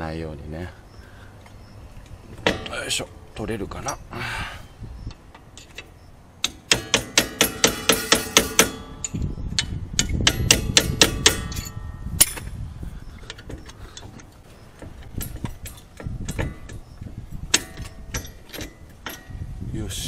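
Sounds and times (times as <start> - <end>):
hammer tapping metal punch: 2.4 - 3.2, 5.1 - 12.5, 13.3 - 16.9, 17.5 - 19.4.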